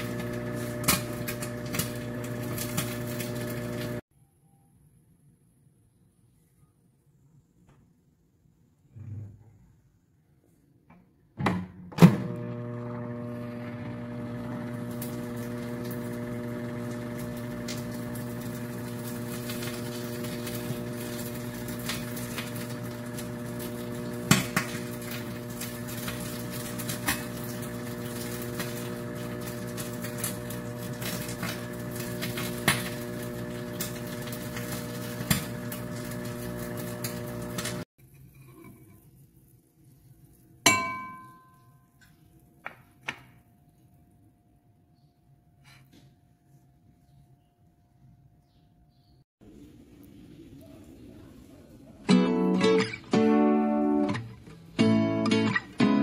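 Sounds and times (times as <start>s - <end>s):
microwave oven humming: 0.0s - 4.0s, 11.9s - 37.9s
microwave ding: 40.7s - 41.9s.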